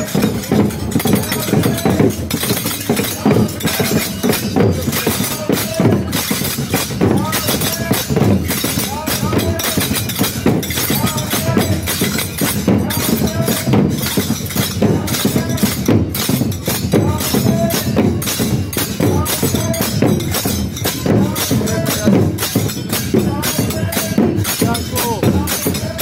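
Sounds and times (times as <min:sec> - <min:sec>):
drums beaten rapidly: 0:00.0 - 0:26.0.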